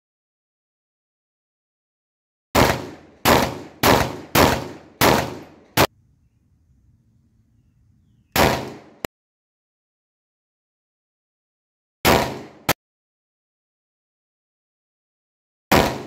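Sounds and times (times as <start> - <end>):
pistol shots: 2.6 - 5.9, 8.3 - 9.1, 12.0 - 12.8, 15.7 - 16.0.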